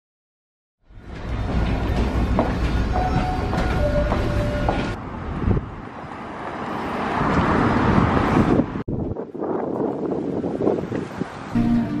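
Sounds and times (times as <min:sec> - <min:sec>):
subway train rumbling: 0:00.8 - 0:09.6
street traffic noise: 0:00.8 - 0:12.0
wind on microphone: 0:04.9 - 0:06.2, 0:07.1 - 0:12.0.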